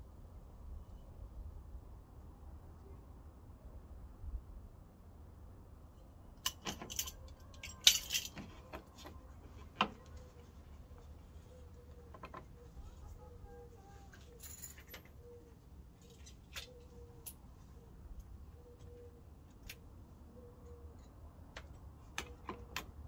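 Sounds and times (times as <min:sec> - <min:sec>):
small parts clinking and knocking: 0:06.4 - 0:10.0, 0:14.2 - 0:15.2.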